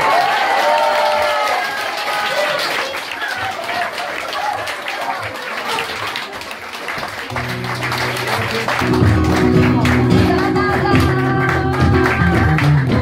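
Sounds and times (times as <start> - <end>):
applause and crowd noise: 0.0 - 13.0
hand clapping: 1.0 - 13.0
flamenco guitar playing: 7.3 - 13.0.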